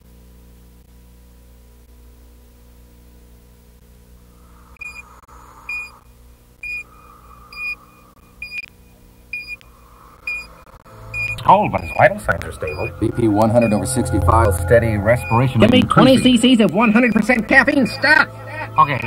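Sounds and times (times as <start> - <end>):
steady low hum: 0.0 - 19.0
heart monitor beeps: 4.8 - 5.1, 5.7 - 6.0, 6.6 - 8.7, 9.3 - 17.6.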